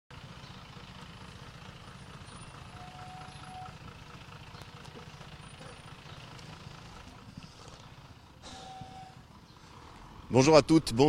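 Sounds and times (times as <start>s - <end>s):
vehicle engine rumbling: 0.1s - 11.0s
faint short tone: 8.4s - 9.2s.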